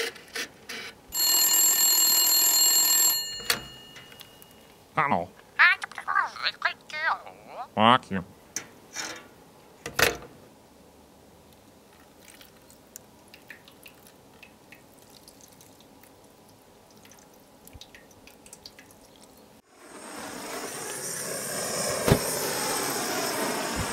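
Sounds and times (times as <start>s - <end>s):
liquid pouring and splashing: 11.9s - 19.6s.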